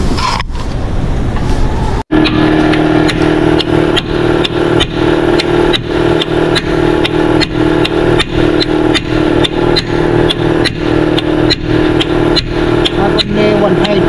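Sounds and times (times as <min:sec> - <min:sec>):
hammer striking chisel on steel: 0:03.0 - 0:14.0.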